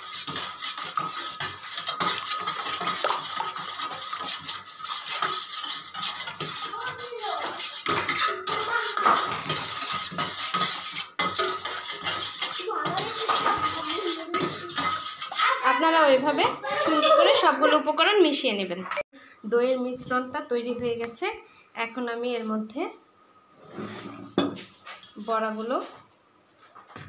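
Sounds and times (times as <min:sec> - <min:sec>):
spoon scraping against bowl: 0:00.0 - 0:15.8, 0:23.6 - 0:26.0.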